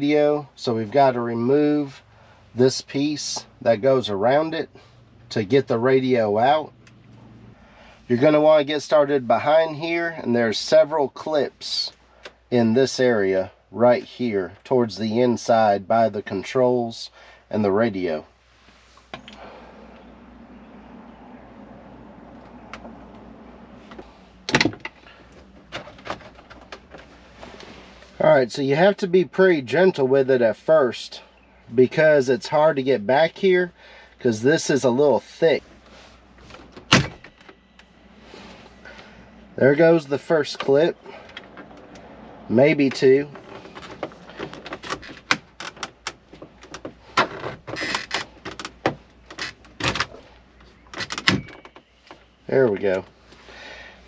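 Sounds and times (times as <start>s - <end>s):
plastic creaking and scraping: 42.9s - 53.1s.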